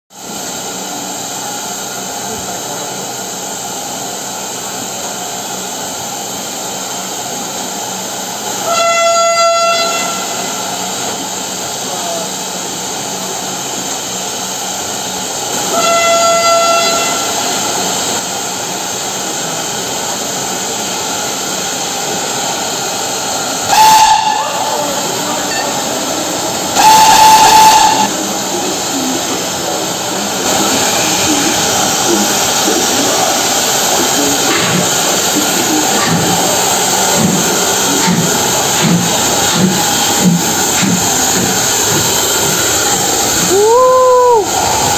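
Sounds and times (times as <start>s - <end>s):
steam locomotive hissing: 0.1s - 44.9s
steam whistle blasts: 8.6s - 10.8s, 15.5s - 17.5s, 23.6s - 25.8s, 26.7s - 28.2s.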